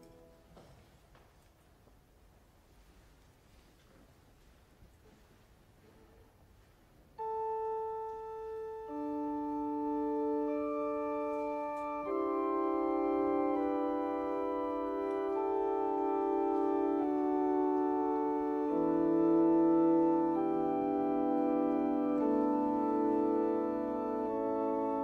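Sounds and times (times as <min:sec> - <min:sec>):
organ playing held chords: 0:07.2 - 0:25.0.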